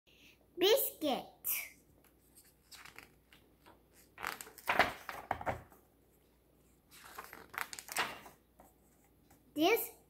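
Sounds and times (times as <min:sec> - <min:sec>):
page turning paper rustling: 0:02.0 - 0:05.8, 0:06.9 - 0:09.4.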